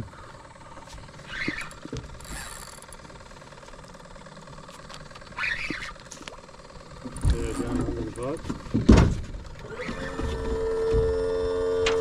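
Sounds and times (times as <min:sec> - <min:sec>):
short squeaks: 0:01.2 - 0:02.6, 0:05.4 - 0:06.1.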